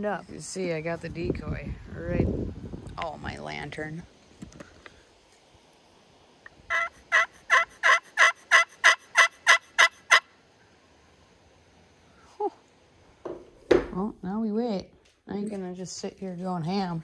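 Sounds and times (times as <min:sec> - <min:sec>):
turkey pot call yelps: 0:06.7 - 0:10.3.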